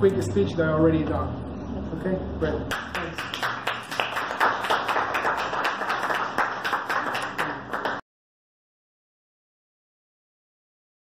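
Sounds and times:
audience applauding: 2.7 - 8.0.

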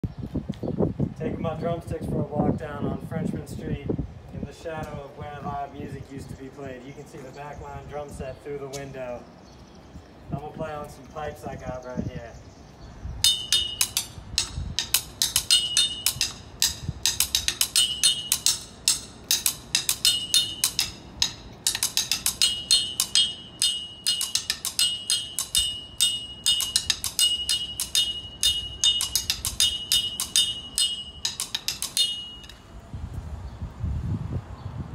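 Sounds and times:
drumstick striking metal pipe: 13.2 - 32.6.

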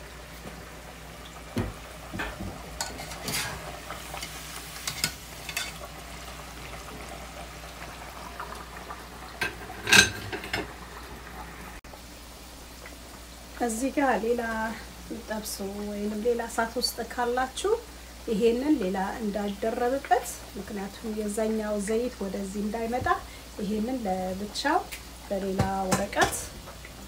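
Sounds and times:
hot oil bubbling and sizzling: 0.0 - 27.0
utensils clinking against pans: 2.2 - 5.8, 9.4 - 10.7.

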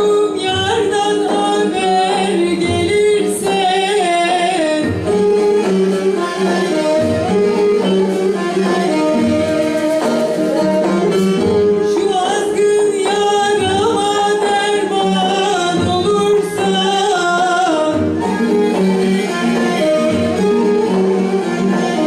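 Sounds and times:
woman singing folk song: 0.0 - 6.9, 11.8 - 18.4
folk ensemble: 0.0 - 22.0
plucked lute: 0.0 - 22.0.

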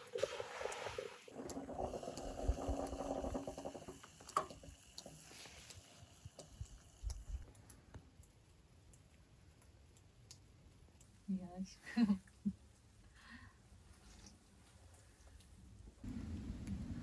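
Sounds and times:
moka pot gurgling and sputtering: 0.0 - 7.5, 16.0 - 17.0.

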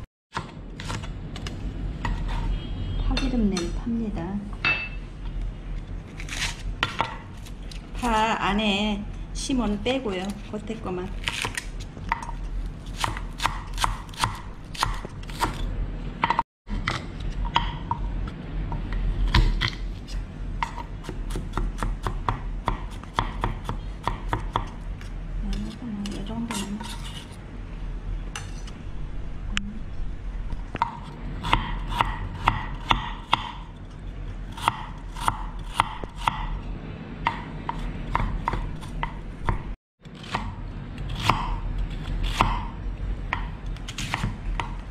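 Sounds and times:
low steady hum: 0.0 - 44.9
knife chopping on wooden board: 20.6 - 24.8, 30.8 - 33.6, 37.2 - 40.5, 43.3 - 44.8.

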